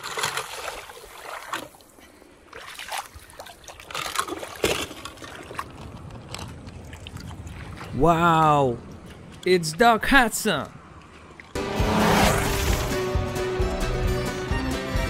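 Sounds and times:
small splashes: 0.0 - 8.0
flowing water: 0.0 - 11.6.

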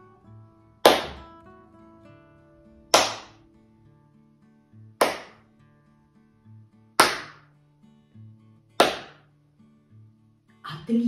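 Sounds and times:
soft background music: 0.0 - 11.0
sharp hand claps: 0.8 - 1.3, 2.9 - 3.4, 5.0 - 5.5, 7.0 - 7.5, 8.8 - 9.3.

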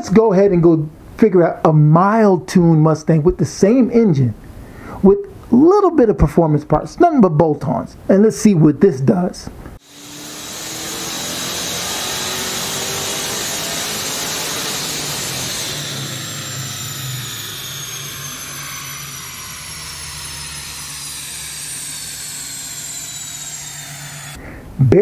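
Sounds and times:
engine revving at full throttle: 9.8 - 24.4.

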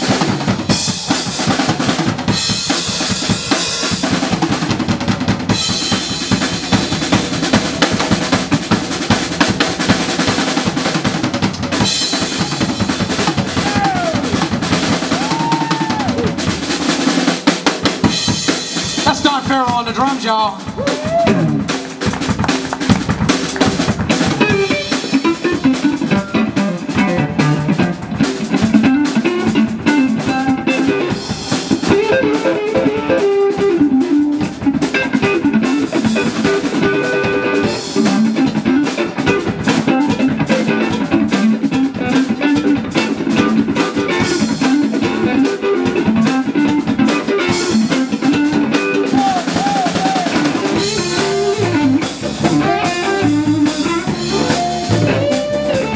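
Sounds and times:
drum kit: 0.0 - 55.9
electric bass: 0.0 - 55.9
electric guitar melody: 21.2 - 55.9.

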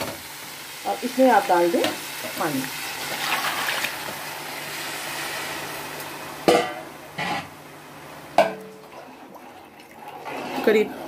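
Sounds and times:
water pouring into hot oil hissing: 0.0 - 6.1.

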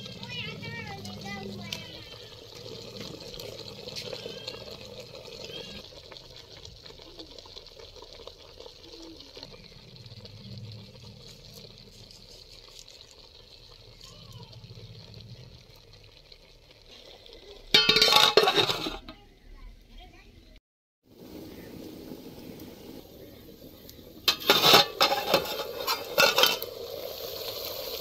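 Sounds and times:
faint voices: 8.6 - 10.0, 21.4 - 24.2
metal plate clattering on pot: 17.7 - 19.2, 24.3 - 26.7.

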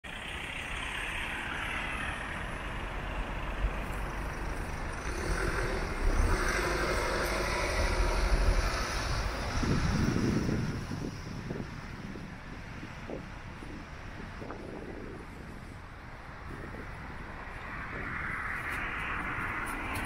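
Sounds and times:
cars passing with tyre noise: 0.1 - 20.0.

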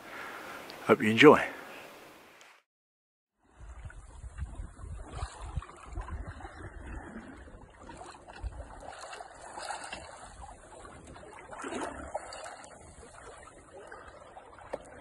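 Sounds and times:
wind buffeting microphone: 3.4 - 13.8
water rushing along hull: 3.4 - 15.0.

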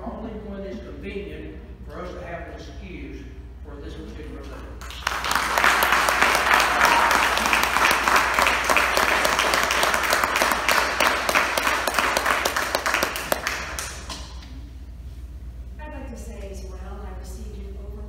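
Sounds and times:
audience applauding: 4.8 - 14.4.

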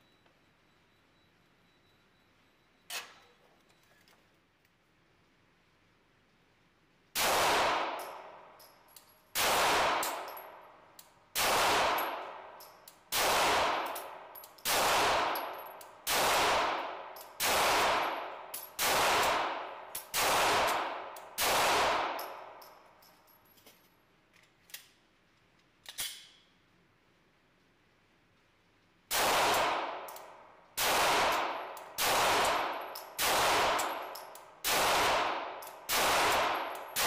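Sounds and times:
pistol shots echoing indoors: 7.2 - 8.7, 9.3 - 22.8, 29.1 - 37.0
magazine clicks: 25.6 - 26.5, 28.8 - 37.0.

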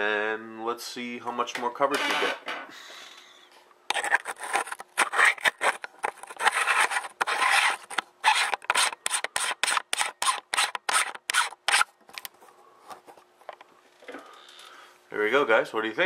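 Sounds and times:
lens threads grinding: 3.9 - 12.3.

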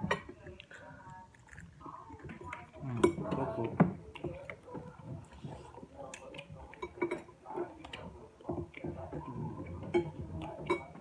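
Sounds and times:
chewing: 0.0 - 11.0
fork tapping a plate: 6.2 - 11.0.

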